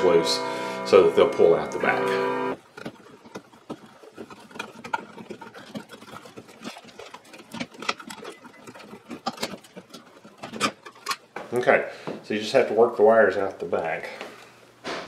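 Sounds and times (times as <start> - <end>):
scraping and clicking of wires: 1.2 - 11.6.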